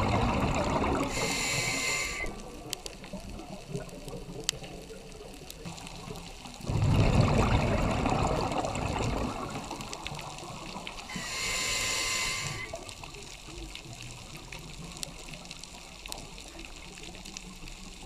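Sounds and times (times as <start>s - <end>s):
exhaled bubbles rushing: 0.0s - 4.3s, 6.0s - 11.5s
hissing regulator inhale: 1.0s - 2.5s, 11.1s - 12.9s.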